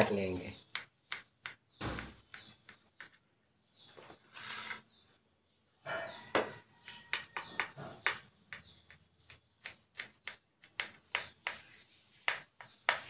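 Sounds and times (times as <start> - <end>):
knife scraping ceramic plate: 4.3 - 4.9.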